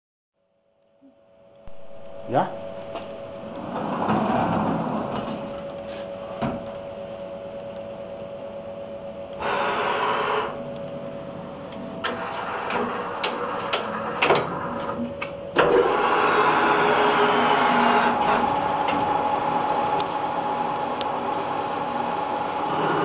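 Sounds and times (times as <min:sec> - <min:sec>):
lathe humming: 0:15.6 - 0:23.0.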